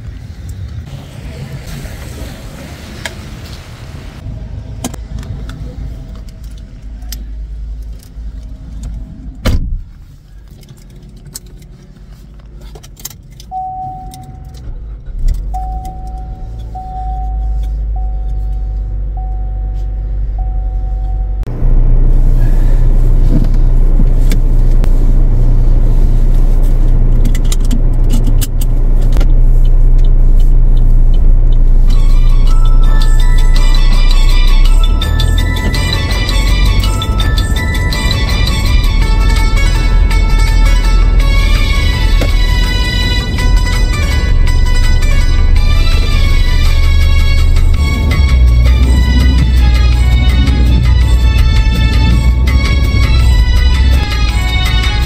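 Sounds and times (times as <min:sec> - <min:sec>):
car engine starting and running: 0:00.0 - 0:55.0
car door shutting: 0:09.4 - 0:10.0
car warning chime beeps: 0:13.4 - 0:14.7, 0:15.5 - 0:21.5, 0:30.8 - 0:38.9.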